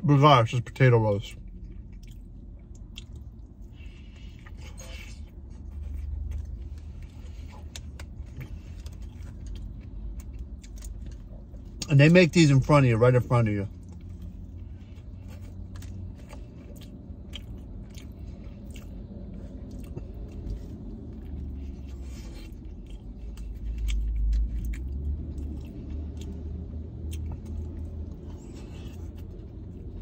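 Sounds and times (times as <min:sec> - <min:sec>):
person chewing: 0:01.4 - 0:12.1, 0:13.7 - 0:30.0.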